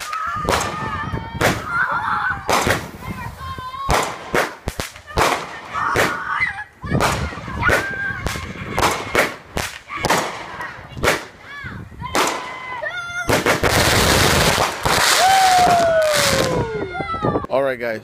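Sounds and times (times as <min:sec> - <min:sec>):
fireworks bangs: 0:00.0 - 0:11.4, 0:12.0 - 0:16.6
fireworks whistling: 0:13.2 - 0:16.6
fireworks crackling hiss: 0:13.3 - 0:16.6.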